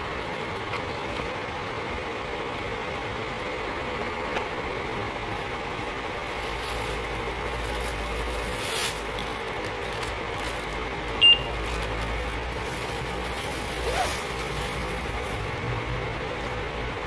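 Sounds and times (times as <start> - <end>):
shop background hum: 0.0 - 17.0
plastic bag crinkling: 6.5 - 10.9, 11.5 - 15.6
checkout beep: 11.2 - 11.6.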